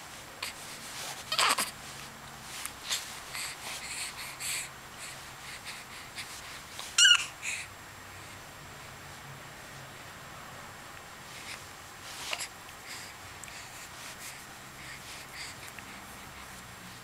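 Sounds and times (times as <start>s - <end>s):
baby squealing: 7.0s - 7.3s.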